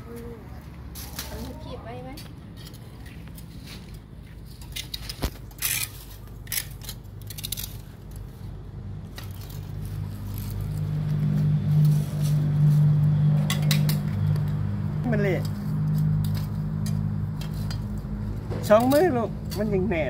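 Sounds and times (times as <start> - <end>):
metal tongs clicking and scraping: 4.6 - 8.3
low motor hum: 8.5 - 18.6.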